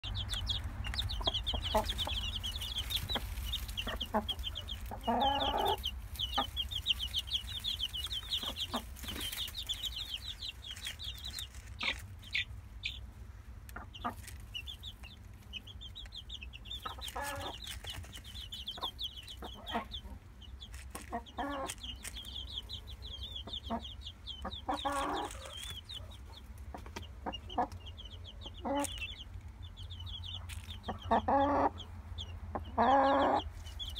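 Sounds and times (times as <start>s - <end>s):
chicks peeping: 0.0s - 33.9s
hen clucking: 0.0s - 33.9s.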